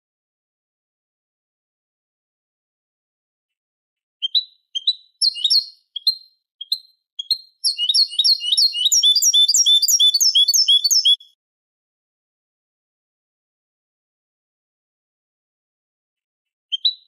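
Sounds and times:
goldfinch song: 0:04.2 - 0:11.4, 0:16.7 - 0:17.0.

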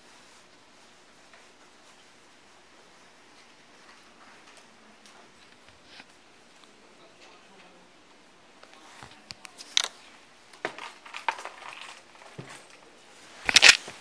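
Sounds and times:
camera handling clicks and rustles: 0:13.5 - 0:13.8.

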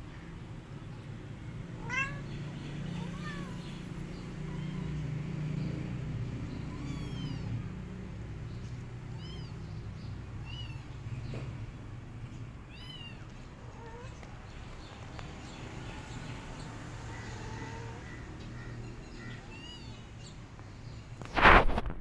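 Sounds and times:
kittens mewing: 0:01.8 - 0:05.5, 0:06.3 - 0:08.0, 0:08.9 - 0:11.2, 0:12.6 - 0:14.6, 0:16.6 - 0:18.3.

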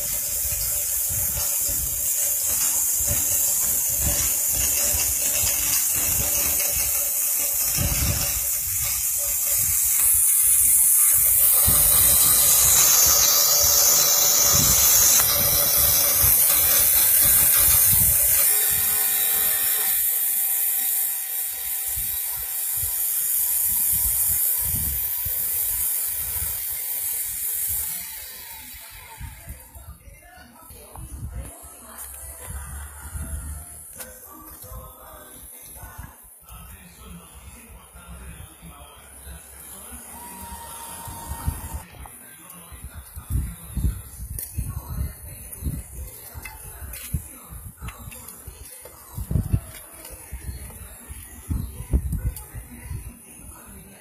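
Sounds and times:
router milling plastic: 0:00.0 - 0:29.7, 0:39.5 - 0:41.9.

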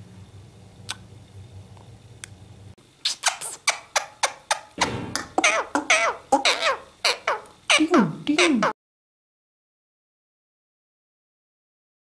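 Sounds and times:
kissing smacks: 0:03.0 - 0:06.6
parakeet squeaky chatter: 0:03.0 - 0:08.7.

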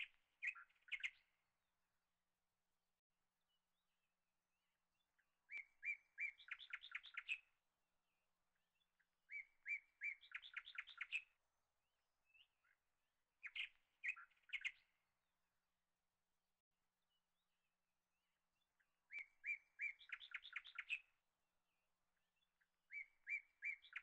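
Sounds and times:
songbird trilling song: 0:00.0 - 0:01.4, 0:04.9 - 0:07.6, 0:08.5 - 0:11.4, 0:12.2 - 0:12.8, 0:13.4 - 0:15.0, 0:18.6 - 0:21.2, 0:22.2 - 0:24.0.

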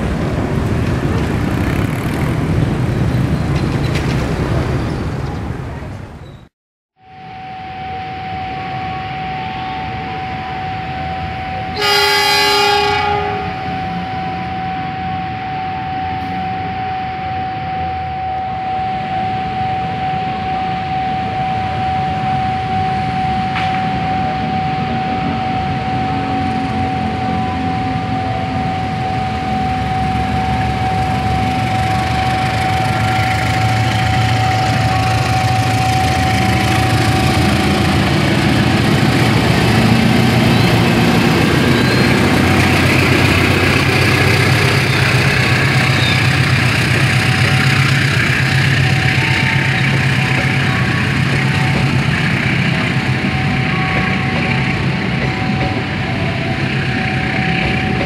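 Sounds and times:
locomotive engine rumble: 0:00.0 - 0:06.5, 0:19.0 - 0:58.0
locomotive horn blast: 0:07.0 - 0:58.0
steady high-pitched tone: 0:07.0 - 0:58.0.

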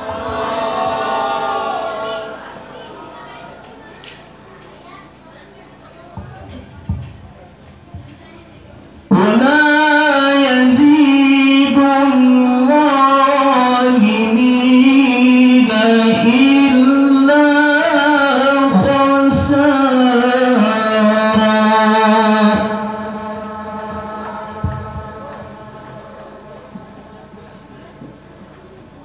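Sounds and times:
man chanting into microphone: 0:09.1 - 0:28.0.

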